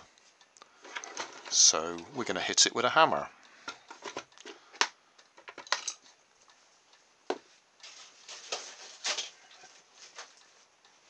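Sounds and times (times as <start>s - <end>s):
rustling and scraping: 0.3s - 1.7s, 7.5s - 10.7s.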